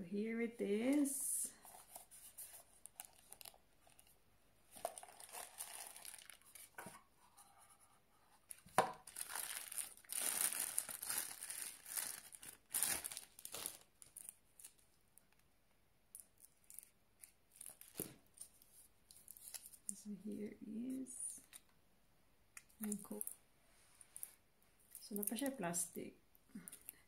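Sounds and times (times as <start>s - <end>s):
plastic wrapping crinkling: 1.6s - 7.0s, 8.5s - 15.4s, 16.1s - 20.0s.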